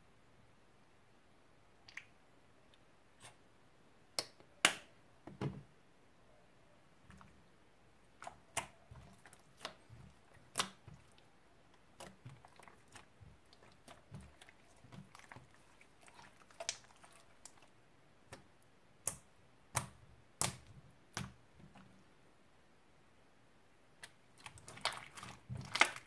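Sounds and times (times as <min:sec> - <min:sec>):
soft slime squelches: 0:06.1 - 0:22.6, 0:23.8 - 0:26.0.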